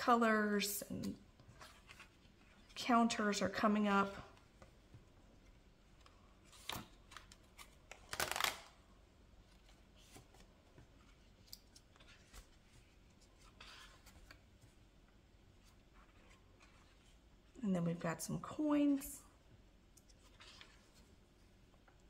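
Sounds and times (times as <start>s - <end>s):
stiff pages turning: 1.4s - 2.8s, 6.0s - 8.8s, 9.4s - 14.6s, 20.1s - 21.0s.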